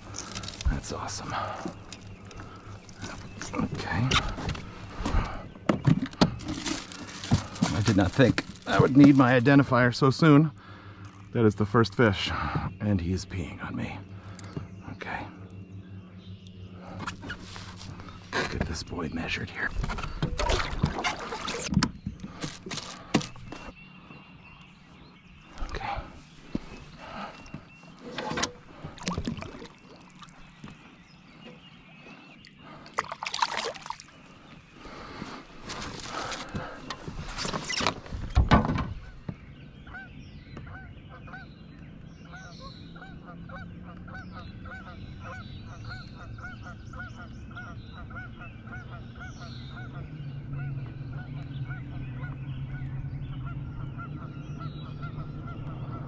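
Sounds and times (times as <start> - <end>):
low hum: 0.0 - 56.0
fish splashing into water: 28.9 - 30.5, 32.8 - 34.3
geese honking: 39.8 - 41.6, 42.2 - 56.0.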